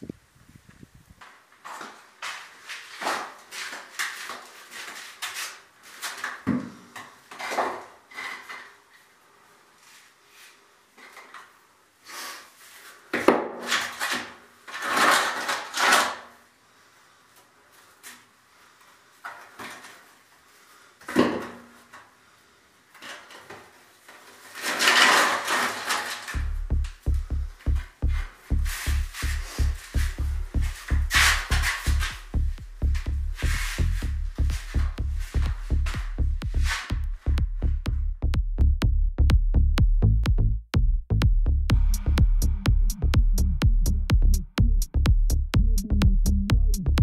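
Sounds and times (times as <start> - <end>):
knocks and scrapes on concrete: 24.5 - 26.5, 28.0 - 32.3.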